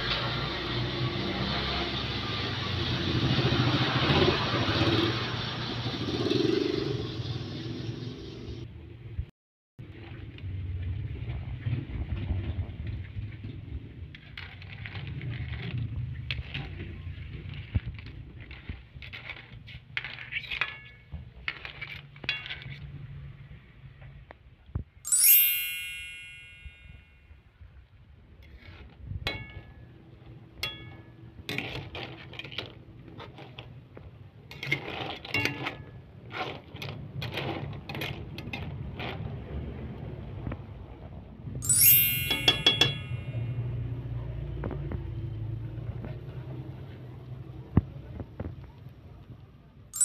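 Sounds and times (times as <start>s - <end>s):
bright chime: 25.1s - 27.2s, 41.6s - 43.7s
shells clinking in a pot: 41.6s - 43.4s.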